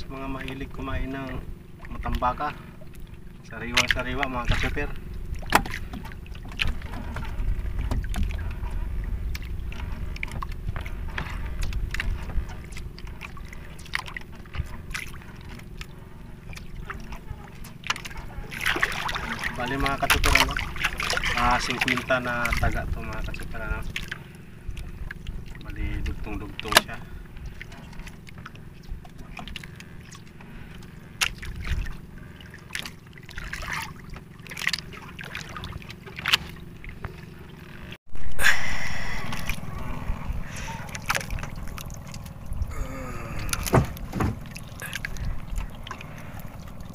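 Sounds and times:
low rumble: 0.0s - 21.8s, 22.4s - 46.9s
faint steady hum: 0.0s - 46.9s
water trickling and sloshing: 0.0s - 46.9s
fishing line hauled in: 26.6s - 46.9s
sharp knocks: 43.6s - 44.6s.

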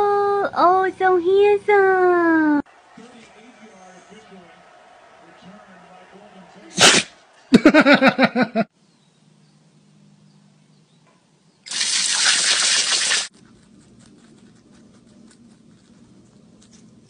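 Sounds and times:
hose nozzle spraying water: 11.7s - 13.3s.

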